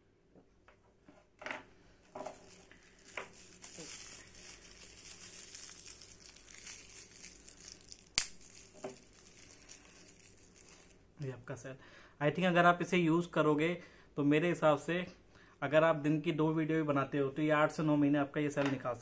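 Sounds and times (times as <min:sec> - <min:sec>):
plastic packet crinkling: 0:02.1 - 0:11.0.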